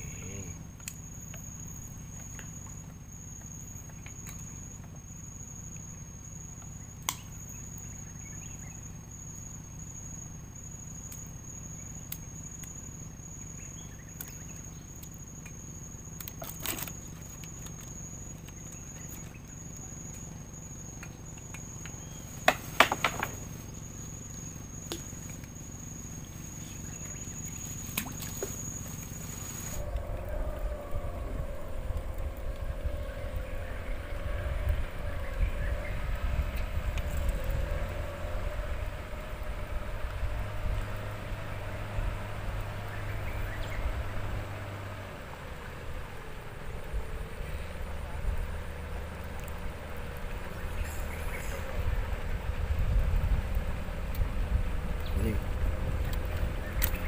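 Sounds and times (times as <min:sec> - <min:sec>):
insect trill: 0:00.0 - 0:57.0
low hum: 0:00.0 - 0:57.0
wind rumbling on microphone: 0:26.0 - 0:57.0.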